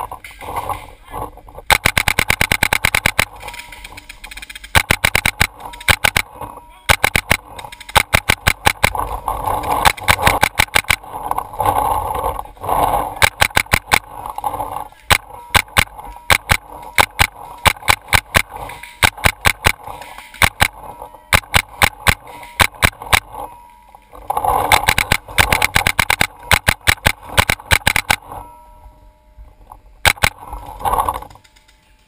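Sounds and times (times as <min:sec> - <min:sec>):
paintball marker firing: 0:01.7 - 0:06.3, 0:06.9 - 0:09.1, 0:09.7 - 0:11.1, 0:13.2 - 0:14.1, 0:15.1 - 0:23.3, 0:24.8 - 0:28.2, 0:30.1 - 0:30.4.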